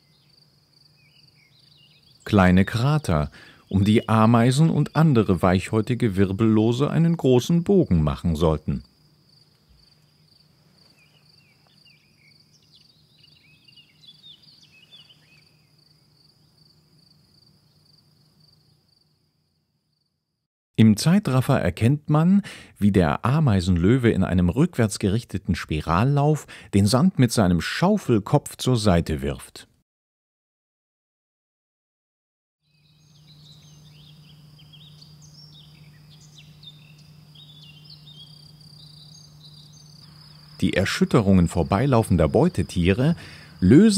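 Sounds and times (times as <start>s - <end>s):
cricket chirping: 0.0s - 20.4s, 32.6s - 43.9s
low steady hum: 1.4s - 18.3s, 33.0s - 43.9s
high-pitched insect trill: 8.8s - 20.1s, 32.6s - 43.9s.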